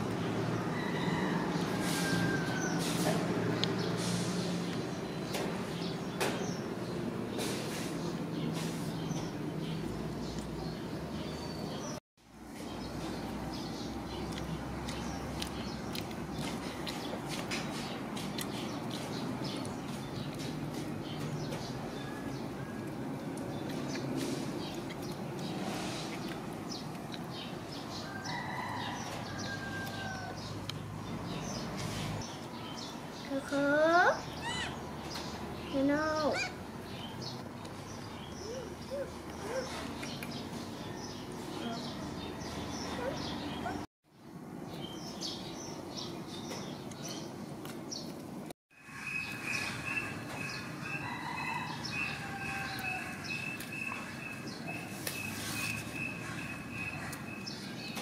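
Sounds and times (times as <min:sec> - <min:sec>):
outdoor background noise: 0:00.0 - 0:58.0
rooster crowing: 0:00.6 - 0:03.0, 0:28.0 - 0:30.5, 0:50.8 - 0:53.6
birds chirping: 0:12.6 - 0:48.2, 0:48.8 - 0:58.0.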